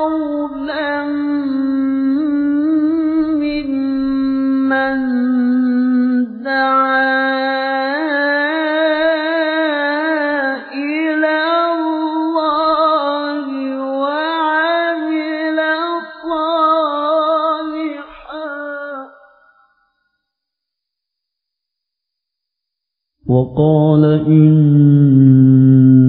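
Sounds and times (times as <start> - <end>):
man chanting a recitation: 23.3 - 26.0.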